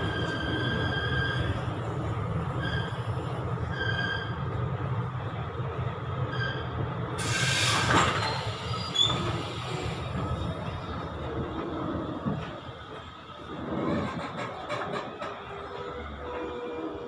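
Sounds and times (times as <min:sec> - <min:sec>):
high-pitched wheel squeals: 0:00.0 - 0:01.7, 0:02.5 - 0:04.4, 0:06.3 - 0:09.5
train coaches rumbling: 0:00.0 - 0:17.0.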